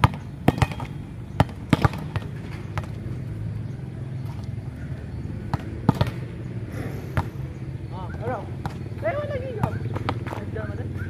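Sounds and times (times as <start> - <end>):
volleyball slaps: 0.0 - 3.0.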